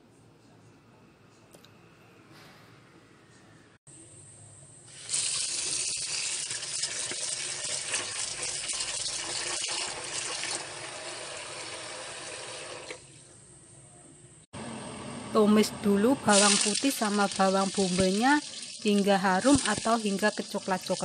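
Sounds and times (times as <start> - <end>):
tap water running into basin: 4.9 - 13.2, 16.3 - 21.0.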